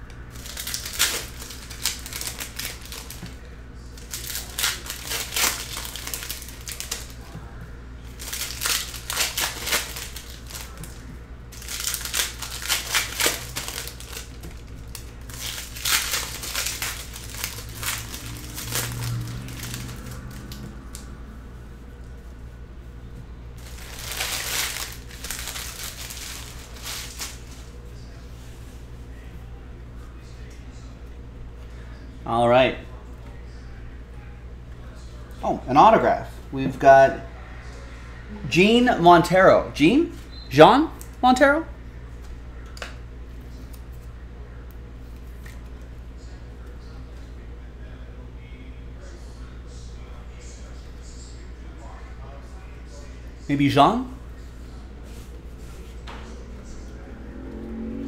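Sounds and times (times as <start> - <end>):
foil wrappers crinkling and tearing: 0.3 - 7.3, 8.0 - 21.0, 23.6 - 27.8.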